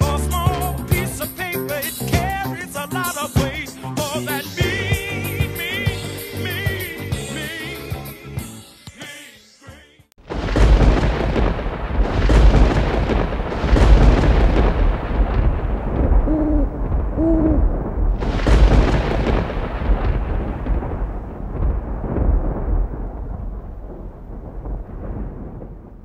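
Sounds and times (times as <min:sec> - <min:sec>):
rolling thunder: 0:10.2 - 0:26.0
owl hooting: 0:16.3 - 0:17.7.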